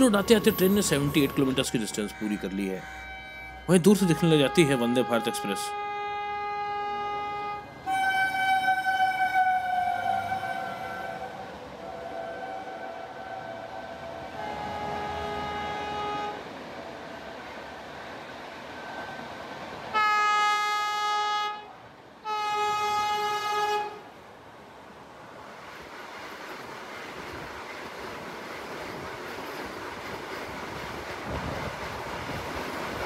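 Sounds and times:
loud train horn blasts: 1.7s - 16.6s, 19.9s - 24.1s
train horn notes: 1.7s - 16.6s, 19.9s - 24.1s.

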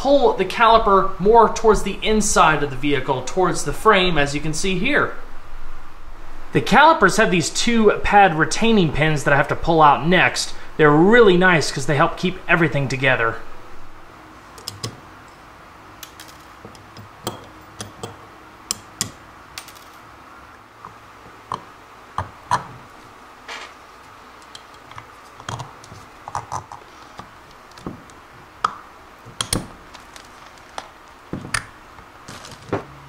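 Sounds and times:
small metal parts clicking: 16.0s - 20.0s.

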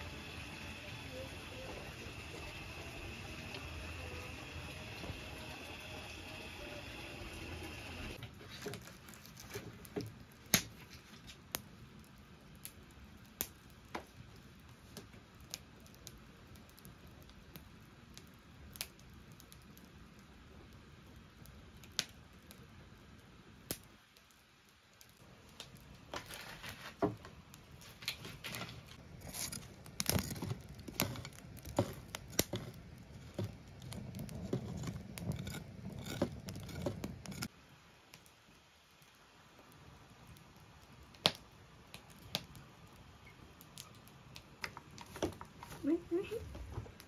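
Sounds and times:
rustling and scraping: 8.2s - 10.0s, 26.1s - 37.5s.

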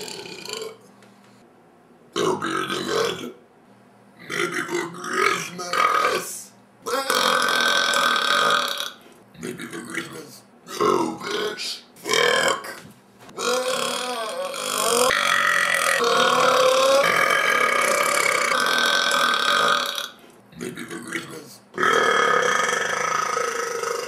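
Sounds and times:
man belching: 0.0s - 0.8s, 6.9s - 9.0s, 13.4s - 20.2s, 21.8s - 24.0s.

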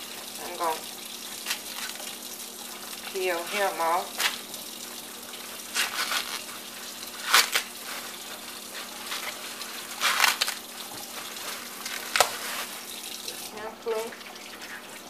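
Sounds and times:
corn husks being torn off: 5.8s - 6.6s, 7.2s - 8.2s, 9.0s - 12.8s.

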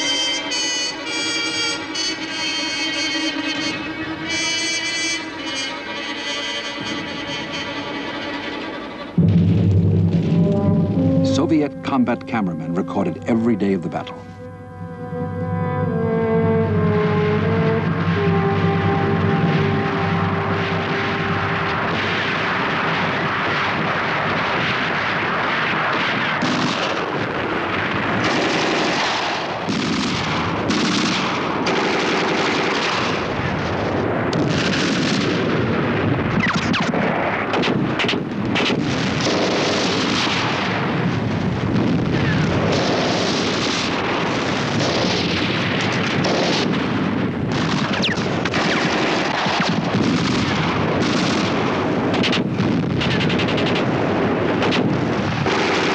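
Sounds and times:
heavy gun and artillery shots: 4.3s - 11.7s, 17.8s - 55.9s
machine-gun fire: 20.6s - 33.6s, 34.4s - 55.9s.

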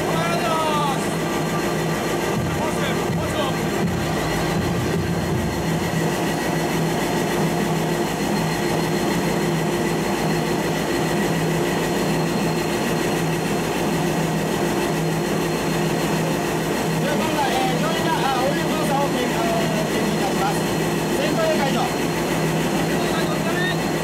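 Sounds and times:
diesel engine running: 0.0s - 24.0s
faint high whine: 0.0s - 24.0s.

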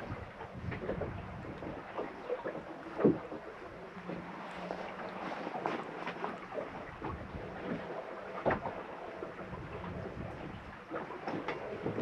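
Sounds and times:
wind on microphone: 0.0s - 1.8s, 9.4s - 10.8s
soft knocks on boat: 0.0s - 4.8s, 5.4s - 12.0s.

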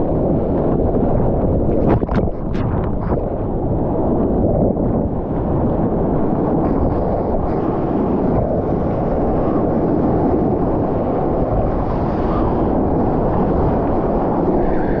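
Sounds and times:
water rushing and sloshing: 0.0s - 15.0s
wind buffeting microphone: 0.0s - 15.0s.

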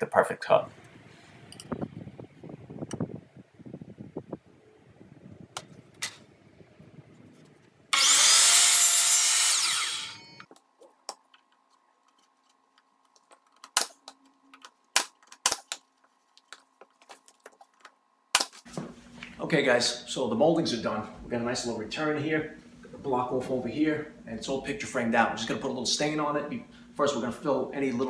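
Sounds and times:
miter saw cutting wood: 7.9s - 10.5s.

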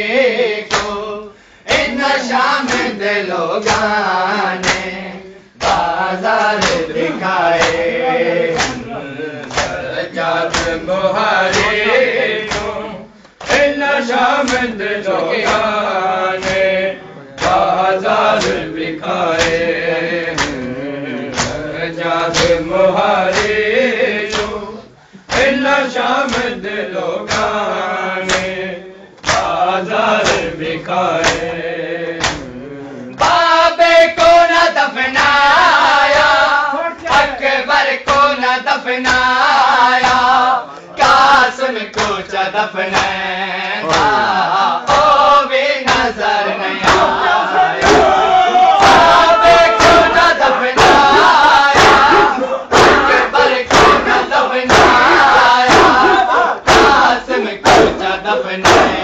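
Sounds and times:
men chanting a lament: 0.0s - 59.0s
hand slaps on chest: 4.6s - 4.9s, 5.6s - 6.9s, 9.4s - 9.8s, 10.5s - 10.8s, 12.5s - 12.7s, 14.4s - 14.7s, 20.4s - 20.7s, 22.3s - 22.6s, 24.3s - 24.5s, 28.3s - 28.5s, 29.2s - 29.5s, 31.2s - 31.5s, 32.2s - 32.5s, 53.7s - 54.0s.

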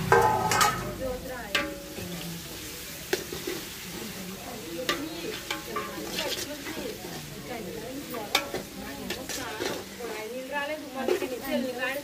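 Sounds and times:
onions sizzling in oil: 0.0s - 12.0s
ladle knocking against pot: 0.1s - 0.8s
metal ladle scraping onions: 1.5s - 11.8s.

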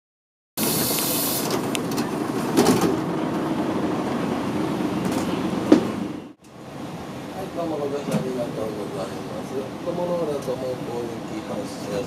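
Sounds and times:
hiss: 0.6s - 1.5s
bus engine idling: 0.6s - 12.0s.

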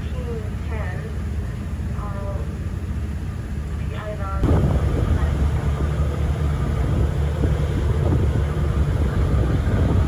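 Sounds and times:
boat engine rumble: 0.0s - 10.0s
wind buffeting microphone: 4.3s - 10.0s
water rushing in wake: 4.4s - 10.0s.

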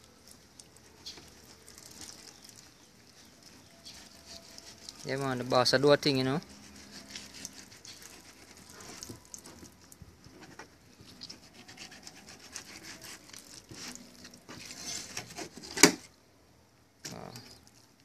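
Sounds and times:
knife scraping cutting board: 6.4s - 9.2s, 11.0s - 15.9s.

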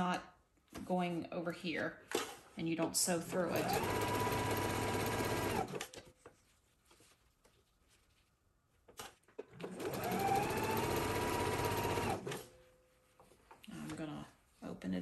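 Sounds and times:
sewing machine motor whining: 3.4s - 5.8s, 9.6s - 12.4s.

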